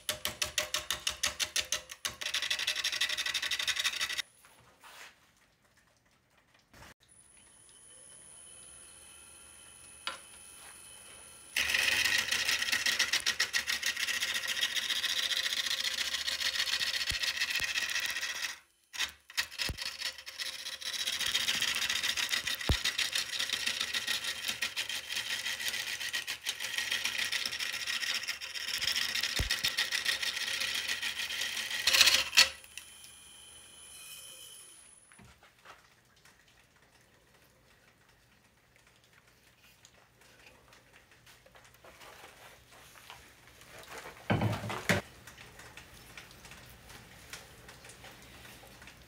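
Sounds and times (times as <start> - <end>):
wood lathe cutting wood: 9.0 - 34.4.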